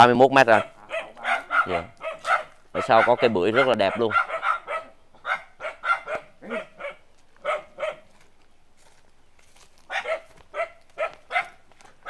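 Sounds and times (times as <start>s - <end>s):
dog barking: 0.5s - 8.1s, 9.9s - 11.6s.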